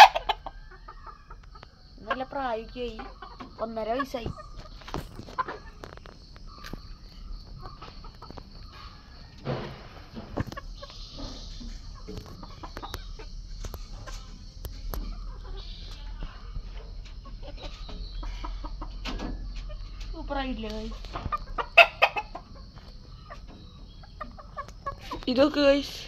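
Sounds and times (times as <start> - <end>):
chickens clucking: 0.0 - 26.0.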